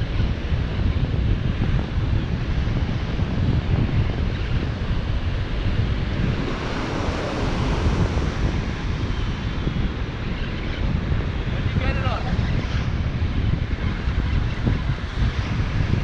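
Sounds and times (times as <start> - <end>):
wind buffeting microphone: 0.0 - 16.0
ocean surf washing on shore: 2.7 - 12.2.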